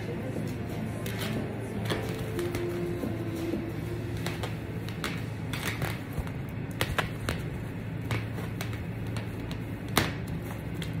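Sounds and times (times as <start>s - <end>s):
low steady hum: 0.0s - 11.0s
plastic film clicks and crinkles: 4.1s - 11.0s.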